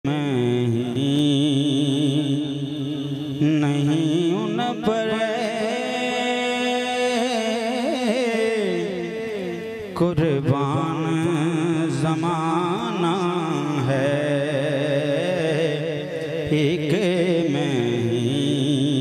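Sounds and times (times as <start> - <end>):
man singing into a microphone: 0.0 - 19.0.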